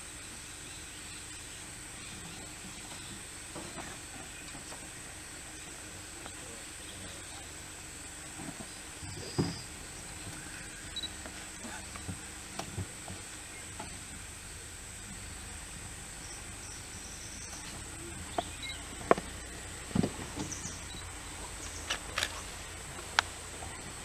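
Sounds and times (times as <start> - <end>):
low thumps: 11.2 - 24.0
sharp cracks in undergrowth: 21.5 - 23.6.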